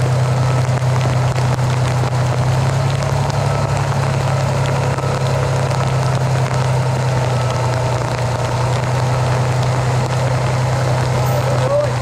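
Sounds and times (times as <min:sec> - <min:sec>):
fire truck engine idling: 0:00.0 - 0:12.0.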